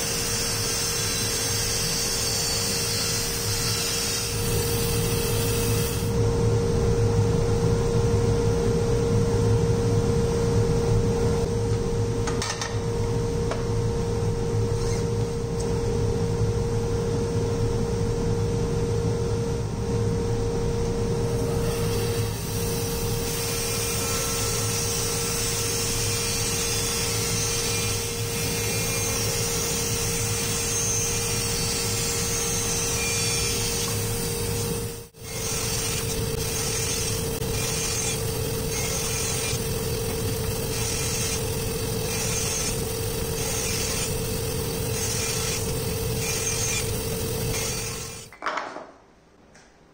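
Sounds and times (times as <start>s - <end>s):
bandsaw running: 21.9s - 48.3s
saw blade cutting plywood: 23.2s - 48.3s.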